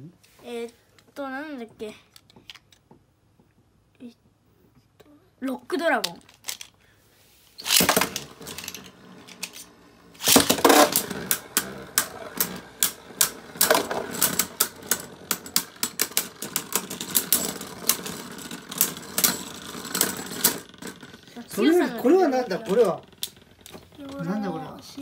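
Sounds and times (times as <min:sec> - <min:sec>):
spinning tops clashing: 0:07.6 - 0:23.8.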